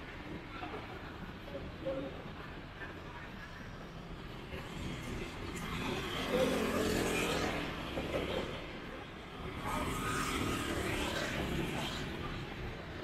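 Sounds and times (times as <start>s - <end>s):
motor vehicles passing: 4.5s - 8.7s, 9.3s - 12.6s.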